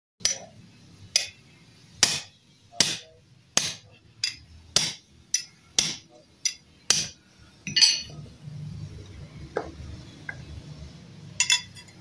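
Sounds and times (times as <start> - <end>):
hammer striking metal: 0.2 - 0.5, 1.1 - 1.4, 2.0 - 8.1.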